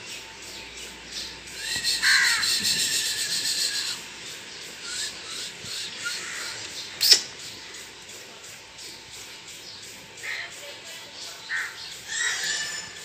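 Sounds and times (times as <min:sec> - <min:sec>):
high drawn-out animal call: 0:01.6 - 0:04.1, 0:11.4 - 0:13.0.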